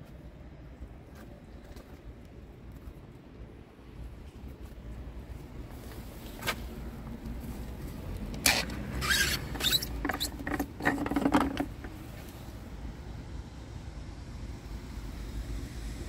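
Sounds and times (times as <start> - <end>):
plastic cap squeaks and clicks: 8.4 - 12.0.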